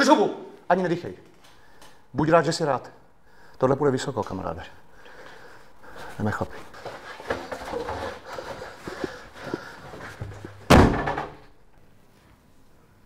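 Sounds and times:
shuffling movement: 5.1s - 10.7s
door slamming shut: 10.6s - 11.5s.

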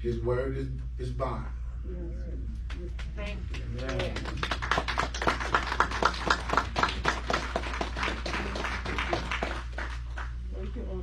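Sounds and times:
people clapping: 2.6s - 10.8s.

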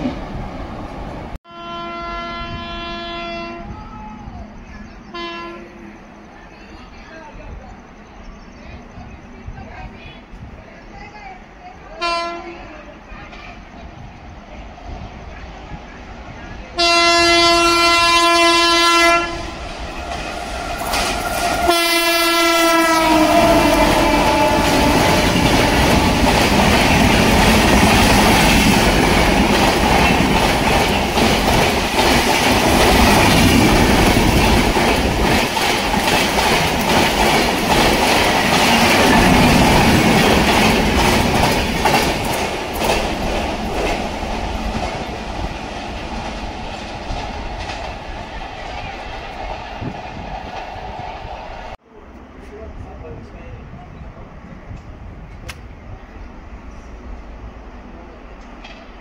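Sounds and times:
train horn blast: 1.5s - 3.8s, 5.1s - 5.8s, 12.0s - 12.6s, 16.8s - 19.6s, 21.1s - 26.2s
train coaches rushing past: 2.2s - 59.0s
wheels clattering over rail joints: 24.0s - 50.8s.

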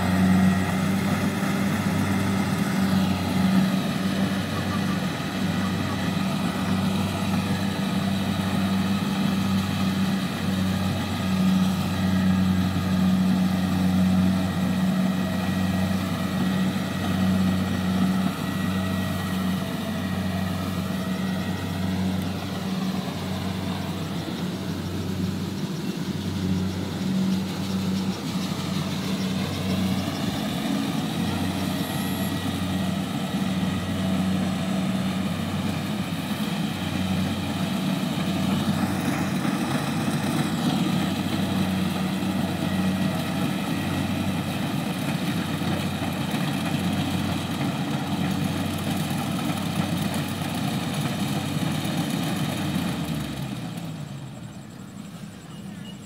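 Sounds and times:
combine harvester diesel engine: 0.0s - 56.0s.

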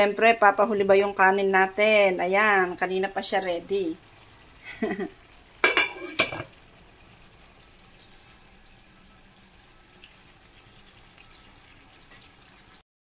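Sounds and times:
sauce simmering in a pan: 0.2s - 12.8s
pot lid clanking down: 5.6s - 6.6s.

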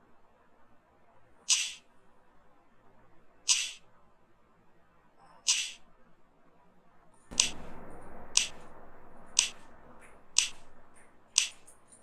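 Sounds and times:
sharp short clicks: 1.5s - 1.8s, 3.5s - 3.8s, 5.5s - 5.8s, 7.3s - 8.7s, 9.4s - 12.0s
low rushing noise: 7.3s - 12.0s.

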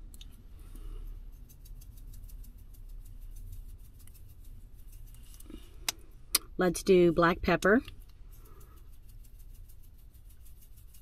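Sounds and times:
low steady hum: 0.0s - 11.0s
salt shaker ticking: 1.2s - 6.0s, 7.6s - 11.0s.

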